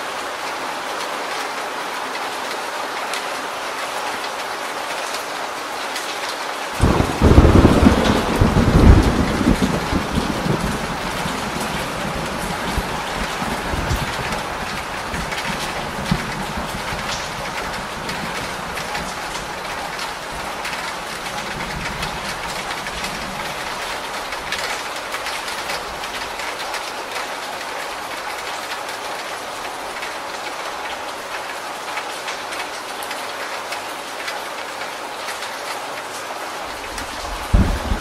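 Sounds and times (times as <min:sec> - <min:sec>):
heavy rain on corrugated roof: 0:00.0 - 0:38.0
low rumble of thunder: 0:06.8 - 0:24.7, 0:37.0 - 0:38.0.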